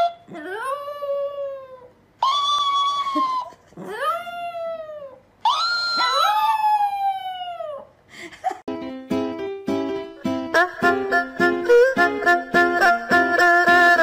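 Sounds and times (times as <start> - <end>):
small dog howling: 0.3 - 7.9.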